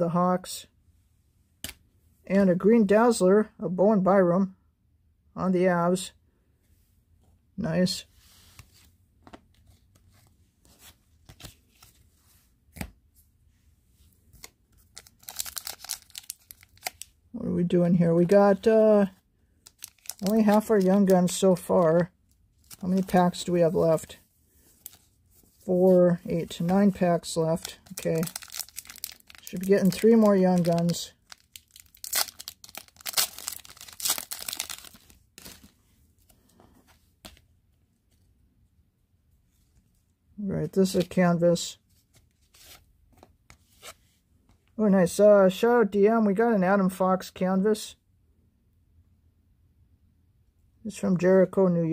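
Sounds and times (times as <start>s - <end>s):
wrapper crinkling and rustling: 14.8s - 17.1s, 19.6s - 21.8s, 22.5s - 24.2s, 26.2s - 35.7s.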